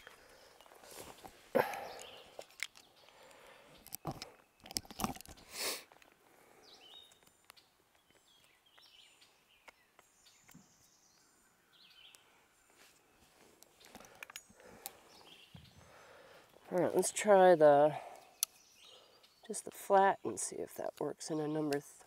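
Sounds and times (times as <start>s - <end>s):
knife clicks and crunches: 2.0s - 2.9s
small parts being handled: 2.4s - 6.1s
faint bird chirps: 18.0s - 19.5s.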